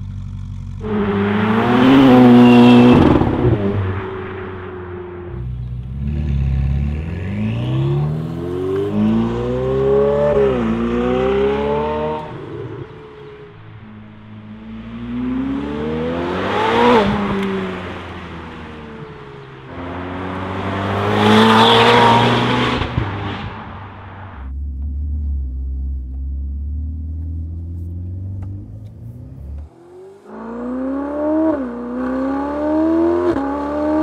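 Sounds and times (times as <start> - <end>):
sports car engine accelerating: 0.0 - 34.0
car passing at full throttle: 0.8 - 24.5.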